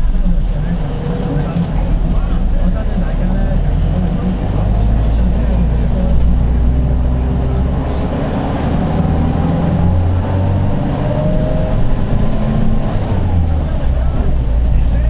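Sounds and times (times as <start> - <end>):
engine and road rumble: 0.0 - 15.0.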